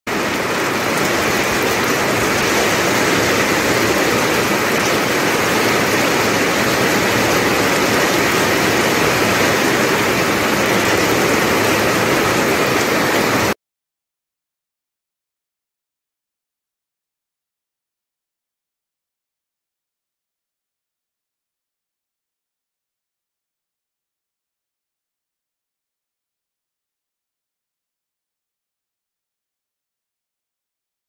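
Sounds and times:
heavy rain: 0.1s - 13.6s.

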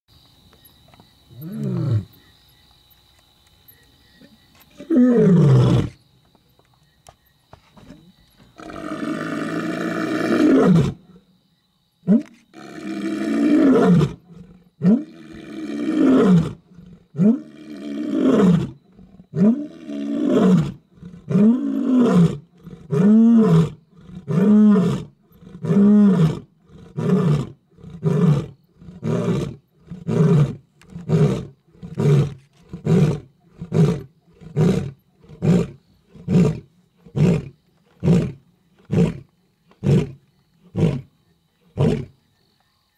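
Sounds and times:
lion roaring: 12.1s - 39.2s.

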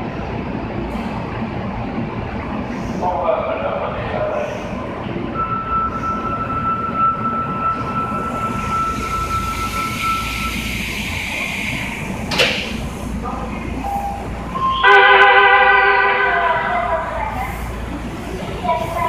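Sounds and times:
station and train noise: 0.0s - 19.0s
multi-tone departure signal: 5.3s - 12.0s, 13.8s - 16.9s
thin steady beep tone: 5.4s - 11.2s, 13.8s - 15.0s.

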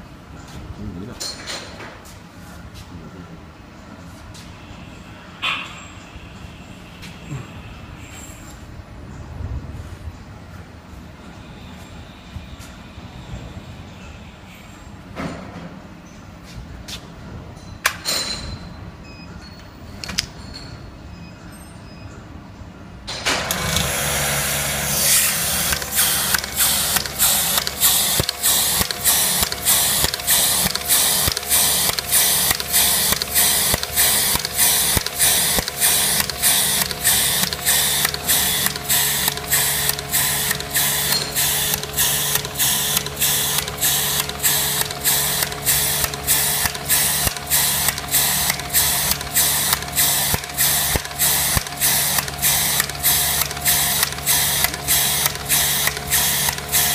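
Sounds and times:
machine motor hum: 23.1s - 56.9s
mechanical clatter: 23.1s - 56.9s.

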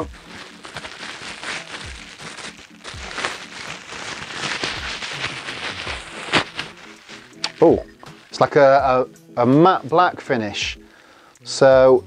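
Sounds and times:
bubble wrap crinkling: 0.0s - 8.5s.

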